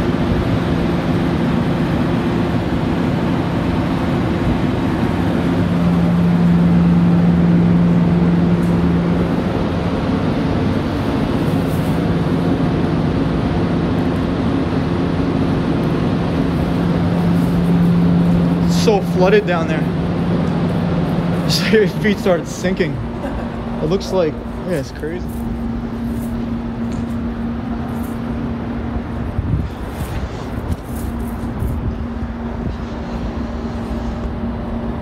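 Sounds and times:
steady mechanical drone: 0:00.0 - 0:35.0.

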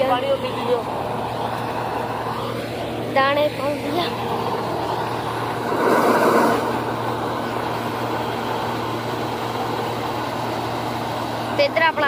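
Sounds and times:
combine harvester humming: 0:00.0 - 0:12.0
rush of noise: 0:04.6 - 0:08.2.

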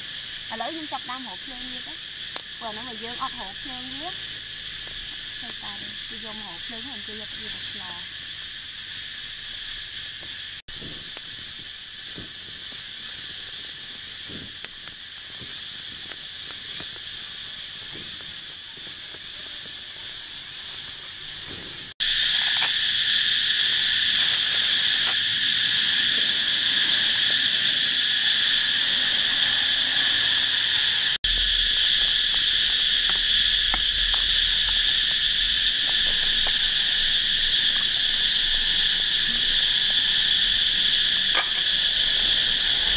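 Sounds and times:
forest insects buzzing: 0:00.0 - 0:42.9.

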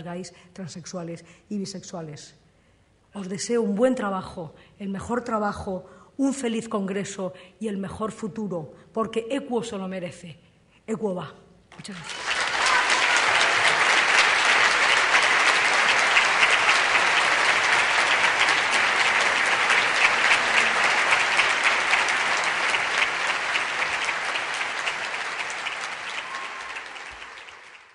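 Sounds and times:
large audience applauding: 0:11.9 - 0:27.9.

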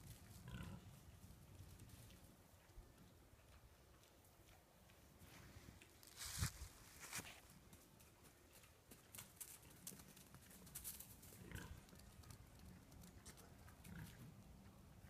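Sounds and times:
footsteps in dry leaves: 0:06.0 - 0:07.5.

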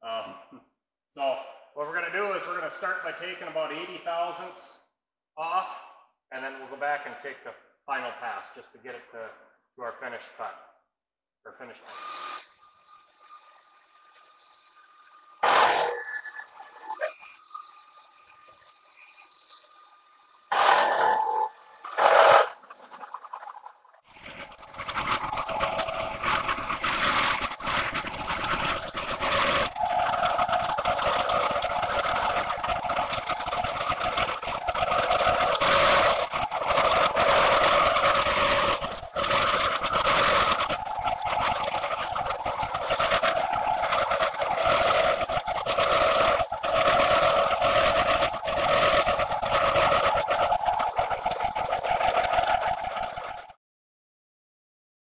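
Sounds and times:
milling cutter whine: 0:15.4 - 0:17.9, 0:20.5 - 0:22.6, 0:25.2 - 0:50.5.

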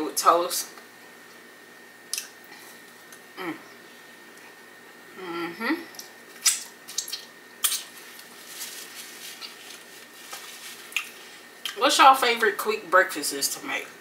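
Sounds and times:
person humming: 0:03.4 - 0:03.7, 0:05.1 - 0:06.0
paper napkin crinkling: 0:07.6 - 0:11.3.

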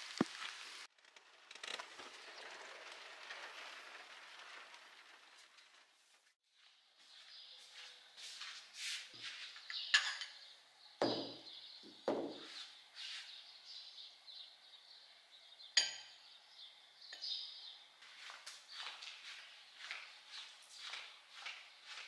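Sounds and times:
sharp knocks: 0:11.0 - 0:12.5.

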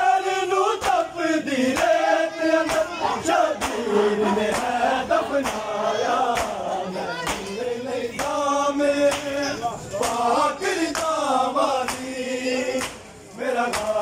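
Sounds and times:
men chanting in unison: 0:00.0 - 0:14.0
hands slapping bare chests: 0:02.6 - 0:02.9, 0:03.6 - 0:03.8, 0:05.4 - 0:06.6, 0:07.2 - 0:07.6, 0:09.1 - 0:09.4, 0:10.9 - 0:11.2, 0:11.8 - 0:12.1, 0:12.8 - 0:13.0, 0:13.7 - 0:14.0.

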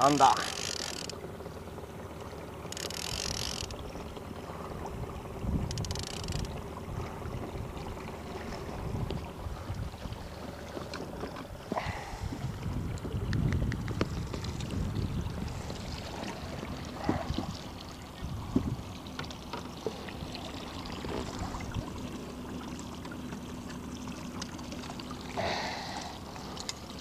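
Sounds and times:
low boat rumble: 0:00.0 - 0:27.0
fishing gear clicks and knocks: 0:00.1 - 0:01.2, 0:02.7 - 0:03.8, 0:05.7 - 0:06.5
wind buffeting microphone: 0:04.6 - 0:19.0.

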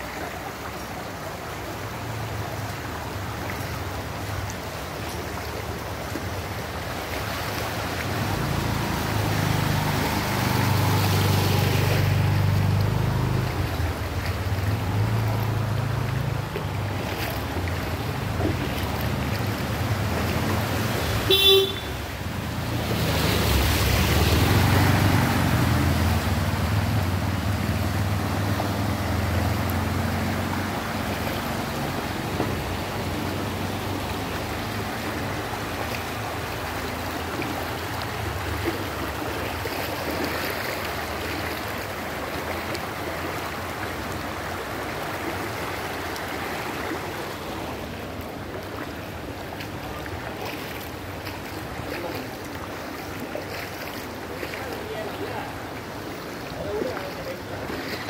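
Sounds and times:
floodwater rushing along street: 0:00.0 - 0:58.0
vehicle horn toot: 0:21.2 - 0:22.1.

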